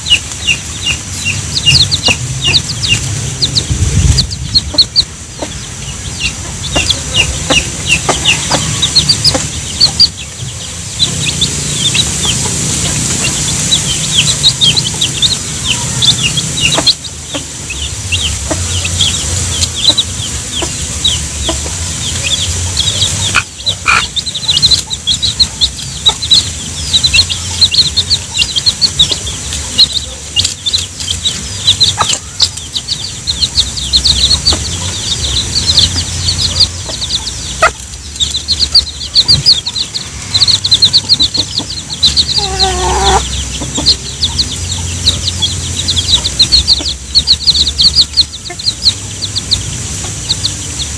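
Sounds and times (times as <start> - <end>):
chicks peeping: 0.0 - 50.9
hen clucking: 0.0 - 50.9.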